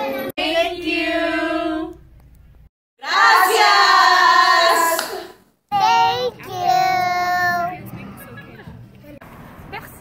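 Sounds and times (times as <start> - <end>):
group voices calling out: 3.0 - 5.4.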